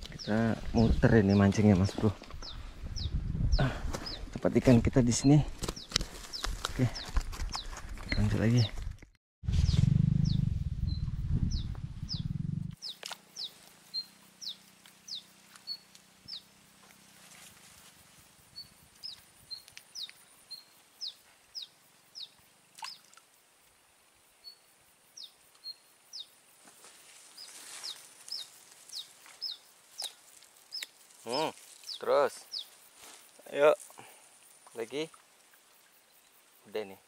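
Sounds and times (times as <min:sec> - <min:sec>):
loud low rumble: 0:09.5 - 0:12.8
bird chirping: 0:09.6 - 0:16.5, 0:18.5 - 0:23.1, 0:24.4 - 0:26.4, 0:27.4 - 0:32.9.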